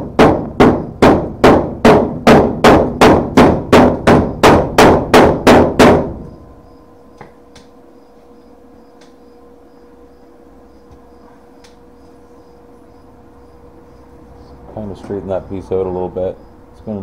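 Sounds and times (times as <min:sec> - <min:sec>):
hammer ringing on sheet metal: 0:00.0 - 0:06.3.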